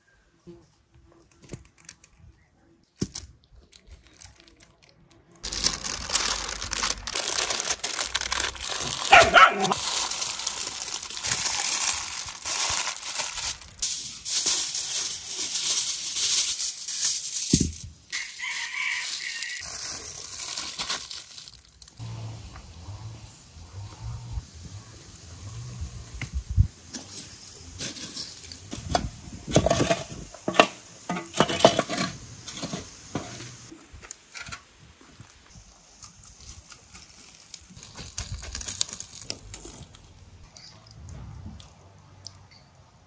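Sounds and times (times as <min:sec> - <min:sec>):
aluminium foil crinkling: 0:01.2 - 0:22.0, 0:35.9 - 0:40.2
dog barking: 0:09.0 - 0:09.8.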